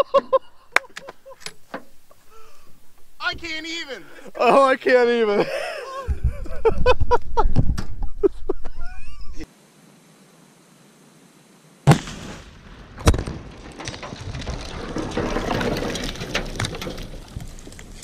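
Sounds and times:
explosion bangs: 11.9s - 16.6s
rushing crackling noise: 12.0s - 18.0s.

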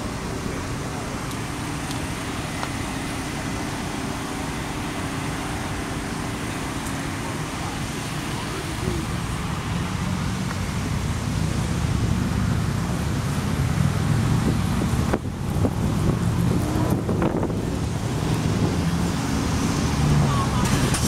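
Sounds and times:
low outdoor rumble: 0.0s - 21.0s
wind buffeting microphone: 9.6s - 21.0s.

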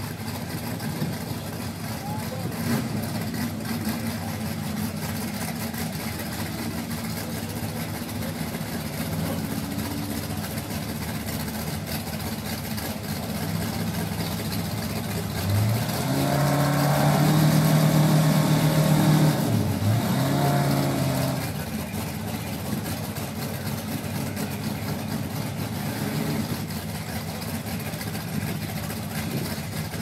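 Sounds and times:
race car engines idling: 0.0s - 30.0s
engine revving high: 15.4s - 21.5s.

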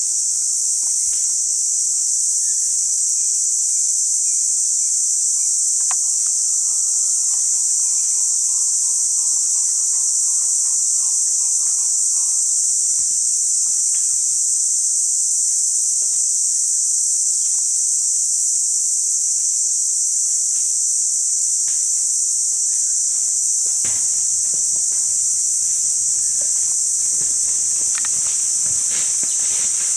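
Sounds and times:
insects droning: 0.0s - 29.9s
faint ticks: 5.8s - 6.4s.

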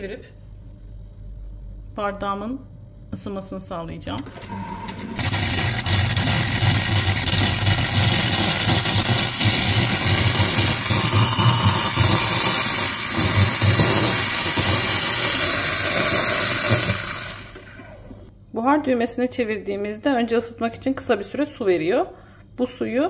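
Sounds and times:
steam wand hissing: 5.2s - 18.3s
water from steam wand: 5.2s - 18.3s.

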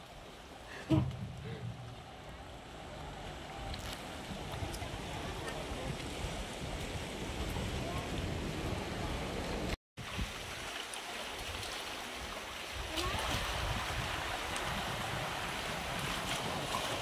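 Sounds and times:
waves lapping against rocks: 0.0s - 17.0s
wind rumbling on microphone: 0.8s - 10.7s, 12.7s - 17.0s.

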